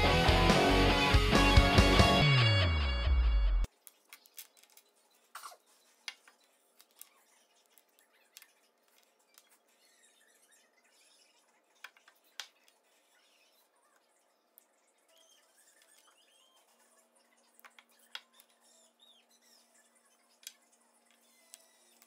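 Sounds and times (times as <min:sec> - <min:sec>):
intro music: 0:00.0 - 0:03.7.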